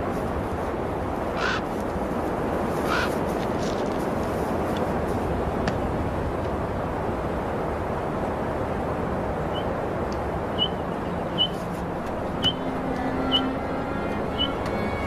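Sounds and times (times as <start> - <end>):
steady rushing noise: 0.0 - 15.0
bird chirping: 10.6 - 11.7, 12.4 - 15.0.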